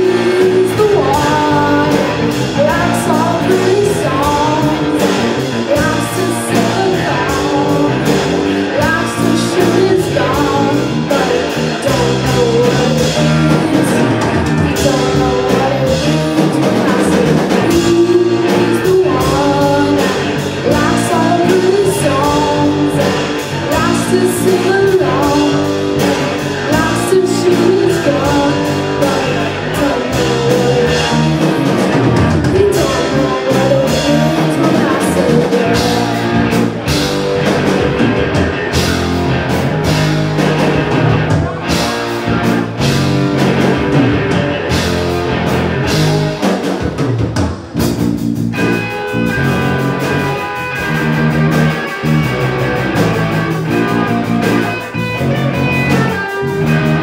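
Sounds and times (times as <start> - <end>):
boy singing into a microphone: 0.0 - 36.4
drum kit: 0.0 - 57.0
electric guitars: 0.0 - 57.0.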